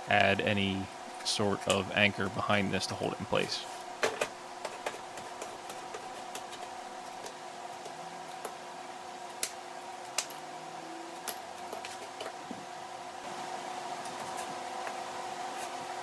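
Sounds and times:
gypsum snapping: 9.3s - 10.4s.

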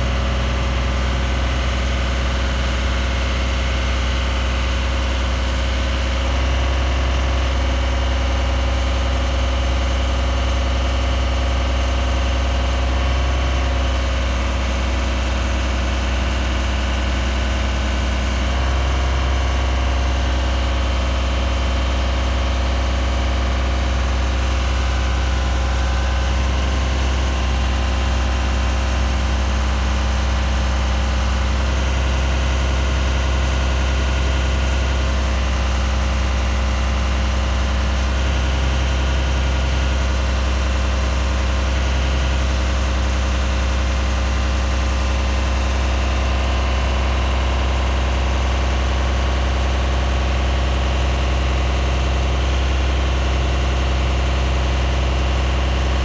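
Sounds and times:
diesel engine humming: 51.4s - 56.0s.

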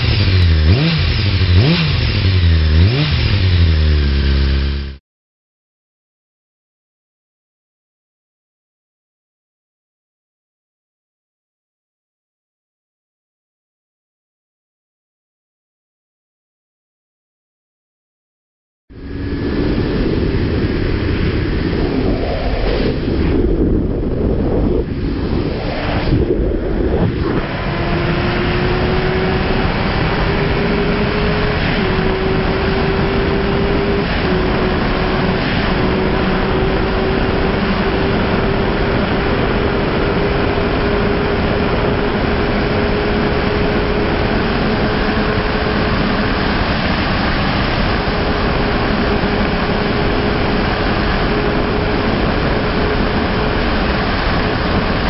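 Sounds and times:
motorcycle engine at high revs: 0.0s - 5.0s, 26.9s - 55.0s
heavy wind rush: 18.9s - 55.0s.

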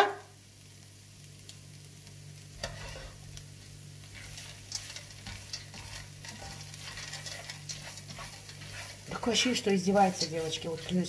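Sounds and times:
food sizzling in a pan: 0.0s - 11.0s
utensil scraping a pan: 2.6s - 3.2s, 4.0s - 11.0s.

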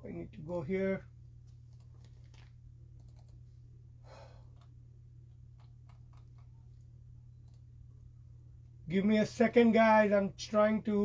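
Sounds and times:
steady low hum: 0.0s - 11.0s
computer keyboard clicking: 3.0s - 3.4s, 5.6s - 6.5s
person breathing: 4.0s - 4.7s.

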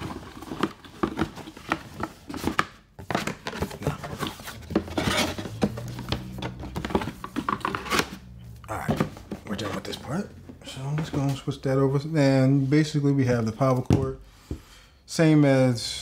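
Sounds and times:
cardboard box being opened: 0.0s - 8.2s
packaging rustling: 0.0s - 10.0s.

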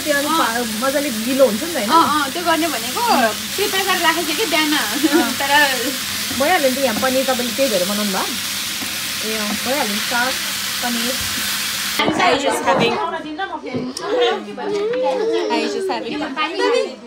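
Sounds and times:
voices: 0.0s - 8.4s, 9.2s - 11.4s, 12.0s - 17.0s
spinach sizzling in a pan: 0.0s - 12.6s.

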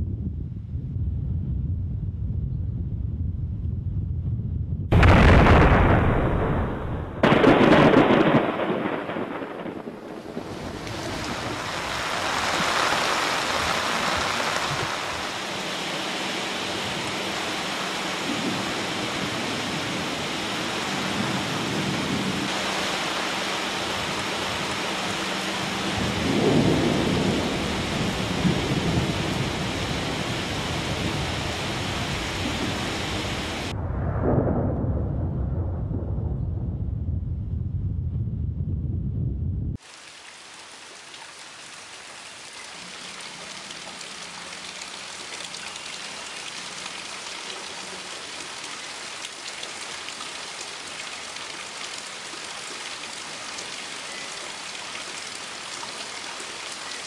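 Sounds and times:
thunderclap: 0.2s - 15.3s, 25.9s - 39.8s
heavy rain: 4.9s - 33.8s, 39.8s - 57.0s.

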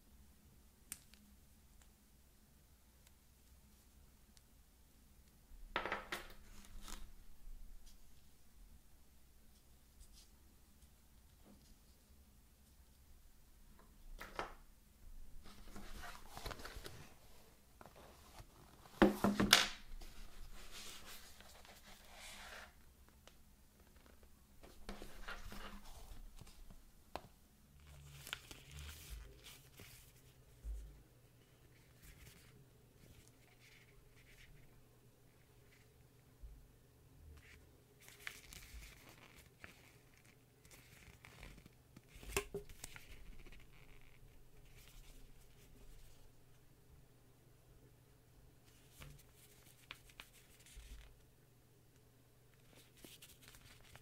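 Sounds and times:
soft rubbing and rustling: 9.4s - 13.1s, 15.4s - 22.9s, 23.8s - 26.8s, 27.8s - 36.0s, 37.4s - 46.6s, 48.6s - 51.3s, 52.5s - 54.0s.

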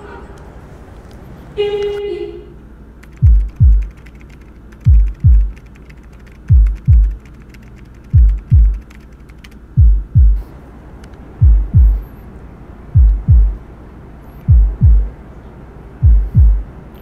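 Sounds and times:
keyboard typing clicks: 3.0s - 9.6s
heartbeat thuds: 3.2s - 4.0s, 4.8s - 5.6s, 6.4s - 7.2s, 8.1s - 8.9s, 9.7s - 10.5s, 11.4s - 12.1s, 12.9s - 13.6s, 14.4s - 15.2s, 16.0s - 16.7s.

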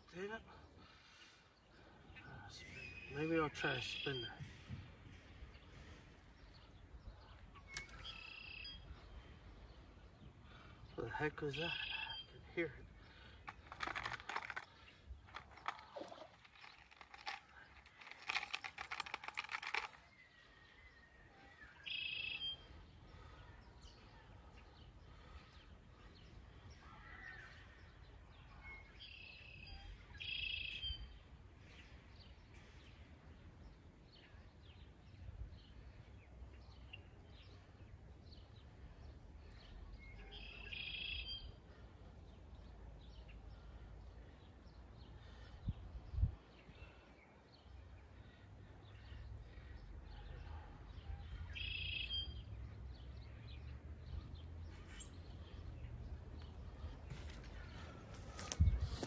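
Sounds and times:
faint outdoor background: 0.0s - 59.0s
bird calling: 11.3s - 20.0s, 21.7s - 22.7s, 40.2s - 41.5s, 51.5s - 52.4s
sharp clicking and rattling: 13.4s - 20.1s.

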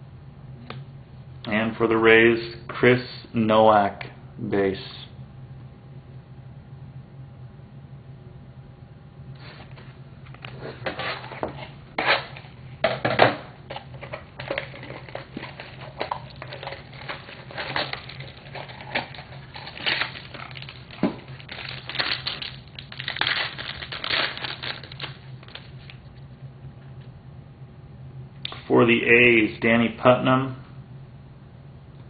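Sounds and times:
card pack wrapper crinkling: 13.7s - 26.0s.

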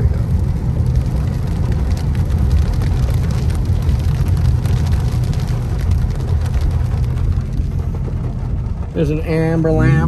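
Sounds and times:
car road and engine rumble: 0.0s - 10.0s
rain pattering on car: 0.0s - 10.0s.

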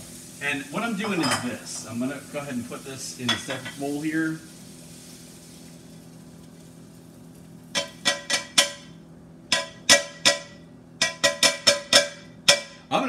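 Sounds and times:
faint hiss: 0.0s - 7.3s
pan clinking against ceramic bowl: 1.0s - 1.5s, 9.5s - 12.8s.

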